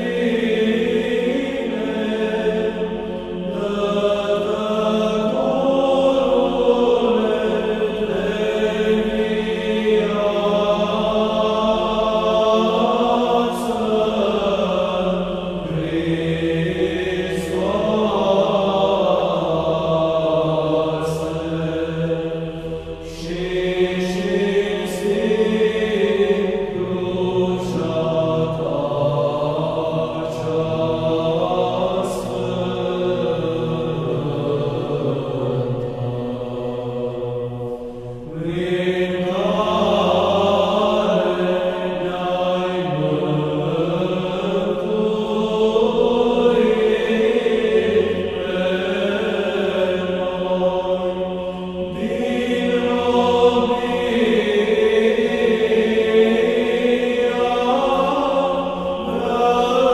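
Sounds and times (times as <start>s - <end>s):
voices chanting: 0.0s - 59.9s.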